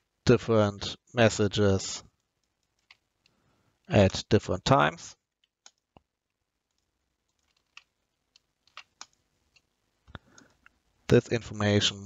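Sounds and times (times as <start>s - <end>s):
keyboard key presses: 6.7s - 9.7s
mouse clicks: 6.7s - 10.8s.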